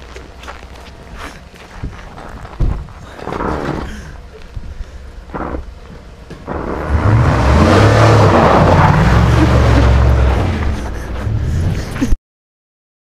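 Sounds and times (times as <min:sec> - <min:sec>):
pickup truck engine revving: 0:05.2 - 0:11.8.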